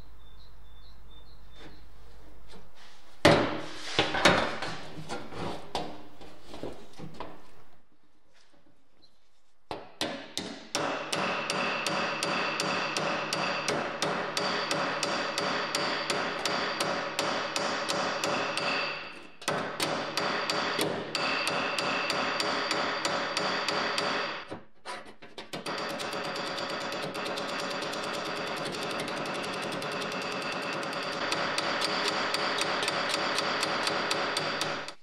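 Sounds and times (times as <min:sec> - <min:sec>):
hammer tapping sheet metal: 0:09.7 - 0:24.5, 0:25.5 - 0:35.0.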